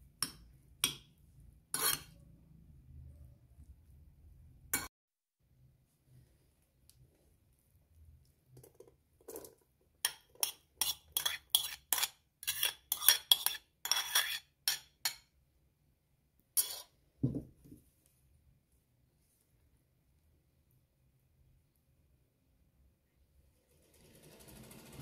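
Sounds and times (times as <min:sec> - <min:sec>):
metal spoon scraping ceramic plate: 0:01.7 - 0:02.2, 0:09.3 - 0:15.3, 0:16.6 - 0:17.0.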